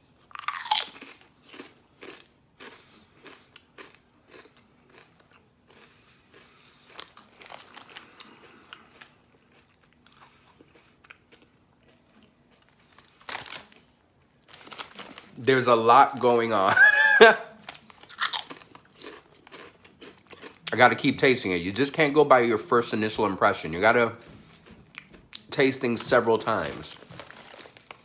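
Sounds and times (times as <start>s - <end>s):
chewing crisp potato chip: 0.1s - 15.5s, 17.5s - 21.2s.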